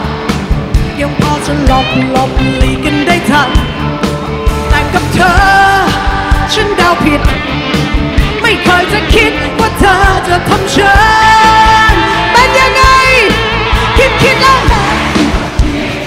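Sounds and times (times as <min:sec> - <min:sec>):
pop-rock band playing: 0:00.0 - 0:16.0.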